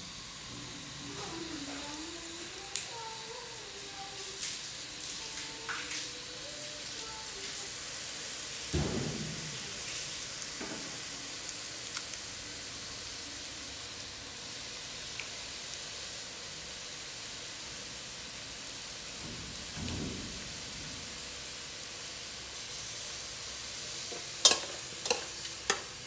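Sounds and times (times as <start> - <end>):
steady hiss: 0.0 - 26.0
low thump: 8.8 - 9.4.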